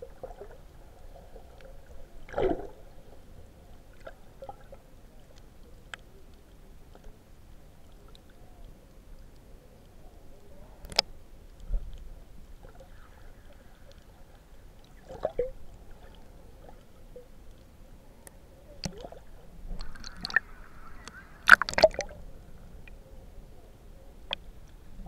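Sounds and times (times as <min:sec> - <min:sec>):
muffled underwater movement: 0:00.0 - 0:25.0
sharp underwater clicks: 0:10.8 - 0:12.1, 0:16.7 - 0:22.2
hiss of moving water: 0:19.7 - 0:22.8.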